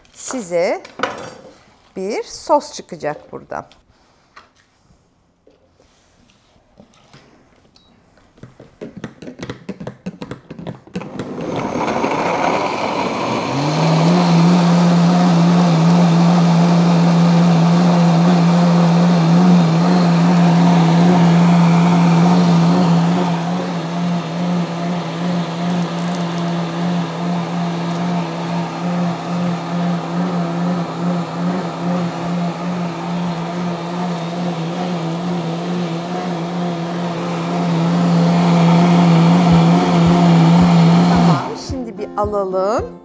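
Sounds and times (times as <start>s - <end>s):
blender running: 11.0s - 41.8s.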